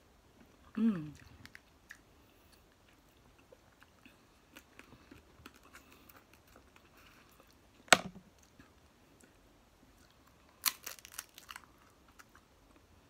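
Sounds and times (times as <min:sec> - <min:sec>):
faint chewing: 0:00.4 - 0:07.7, 0:08.4 - 0:12.9
crab legs cracking: 0:10.6 - 0:12.3.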